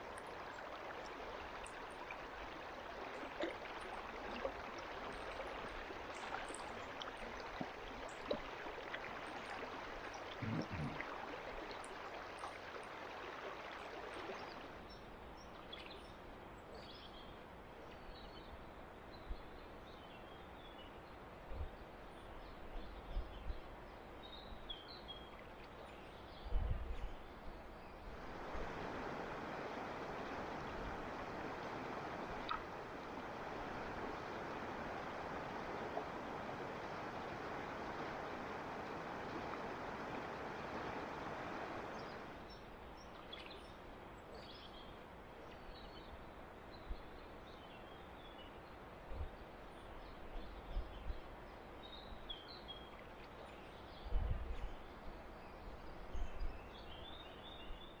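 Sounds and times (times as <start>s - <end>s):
river water rushing: 0.0s - 14.9s, 28.1s - 42.8s.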